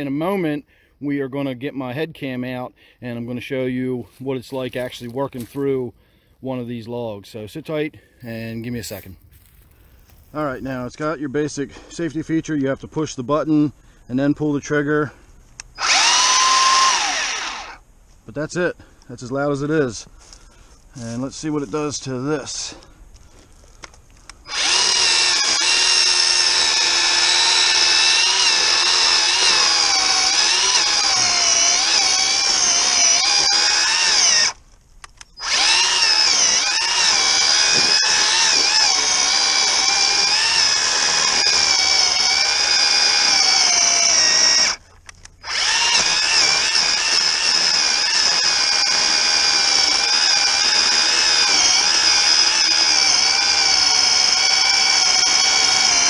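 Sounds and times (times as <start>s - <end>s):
electric chainsaw cutting log: 15.8s - 17.8s, 24.4s - 34.6s, 35.4s - 44.8s, 45.4s - 56.0s.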